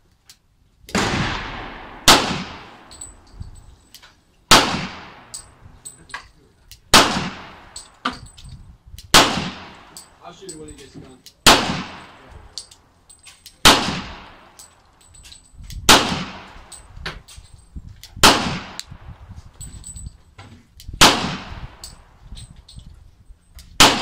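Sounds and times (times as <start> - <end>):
pistol shots echoing: 0.9 - 3.0, 4.5 - 5.5, 6.9 - 7.8, 9.1 - 10.2, 11.4 - 12.2, 13.6 - 14.6, 15.9 - 16.7, 18.2 - 18.8, 21.0 - 22.0, 23.8 - 24.0.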